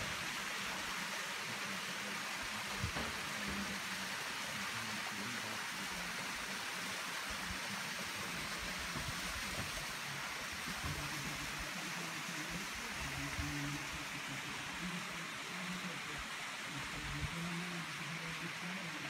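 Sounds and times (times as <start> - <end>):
water pouring into pond: 0.0 - 19.0.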